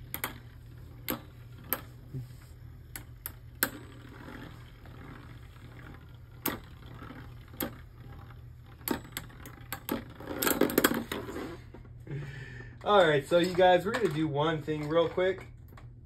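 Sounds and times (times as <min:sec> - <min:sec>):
spinning tops clacking together: 0:00.0 - 0:02.0, 0:02.9 - 0:11.4
spinning tops whirring: 0:00.0 - 0:11.7.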